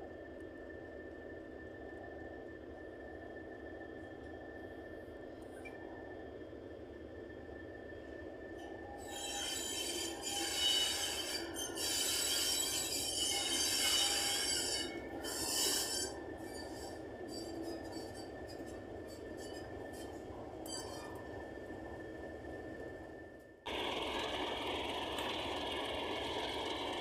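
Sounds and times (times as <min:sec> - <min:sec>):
wheel flanges squealing on rails: 0:08.6 - 0:22.1
diesel locomotive engine running: 0:12.8 - 0:27.0.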